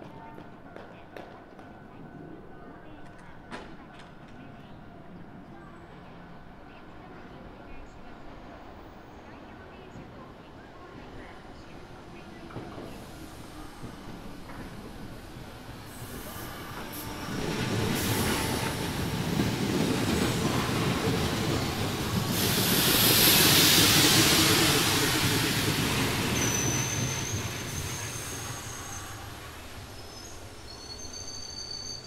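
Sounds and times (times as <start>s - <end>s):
electric train rumble: 11.2s - 31.6s
loud hiss: 22.1s - 29.0s
high-pitched wheel squeal: 30.0s - 32.0s.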